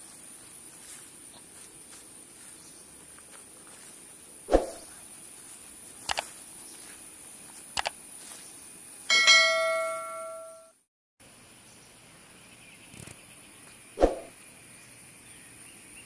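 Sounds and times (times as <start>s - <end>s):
bell-like notification chime: 9.1s - 10.7s.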